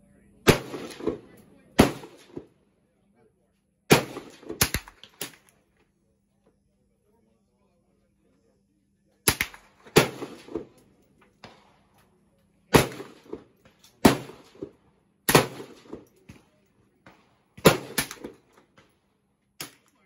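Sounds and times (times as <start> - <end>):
rifle shots: 0.4 - 2.5, 3.9 - 5.6, 9.2 - 10.8, 12.7 - 19.0
faint distant gunshots: 0.5 - 2.6, 3.9 - 5.4, 9.3 - 10.8, 11.4 - 12.0, 12.7 - 19.0.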